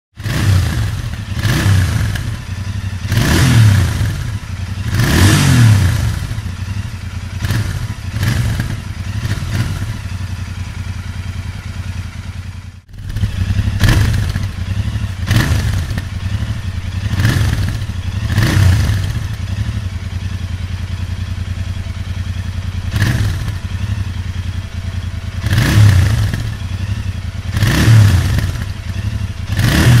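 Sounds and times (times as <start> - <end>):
motorcycle engine idling and revving: 0.1 - 30.0.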